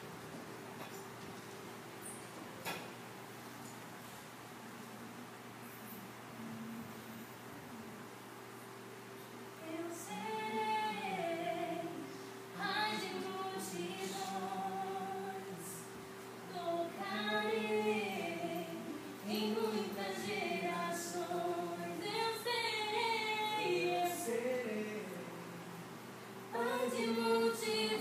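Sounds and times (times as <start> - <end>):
women singing slow phrases: 9.6 - 25.5, 26.5 - 28.0.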